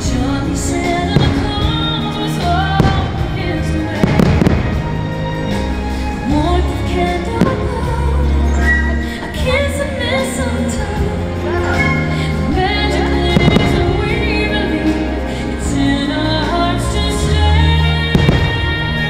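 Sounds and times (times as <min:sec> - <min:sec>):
firework bangs and crackle: 0:00.0 - 0:06.5, 0:07.2 - 0:08.1, 0:13.3 - 0:14.3, 0:18.1 - 0:19.0
music playing: 0:00.0 - 0:19.0.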